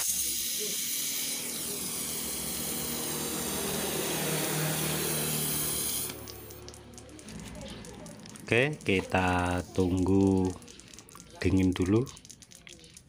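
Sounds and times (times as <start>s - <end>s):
torch flame hissing: 0.0s - 6.6s.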